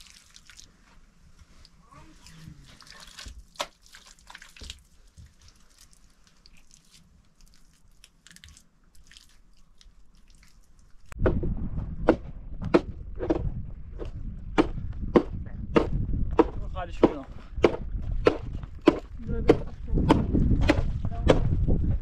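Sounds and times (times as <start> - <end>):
hands smoothing wet mud plaster: 0.0 - 11.2
low rumble: 11.1 - 22.0.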